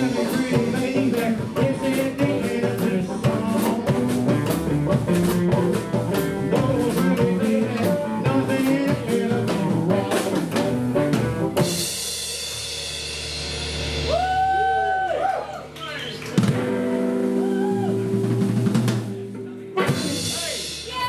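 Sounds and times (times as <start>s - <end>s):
man singing: 0.0s - 5.0s, 5.6s - 10.6s
electric guitar: 0.0s - 12.8s, 13.9s - 21.0s
double bass: 0.0s - 14.2s
drum kit beat: 0.0s - 14.8s, 16.2s - 21.0s.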